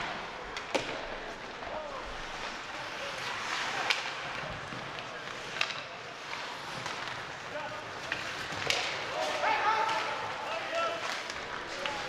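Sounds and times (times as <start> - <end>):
skates scraping on ice: 0.0 - 12.0
hockey stick clacking on puck: 3.5 - 7.2, 8.0 - 10.2.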